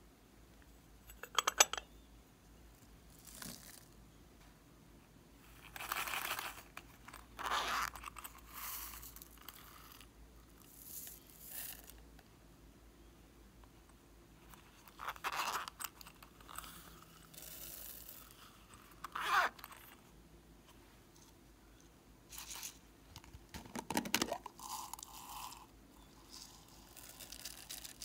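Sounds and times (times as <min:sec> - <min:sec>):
cubes tipped into slime tray: 0:23.5 - 0:24.5.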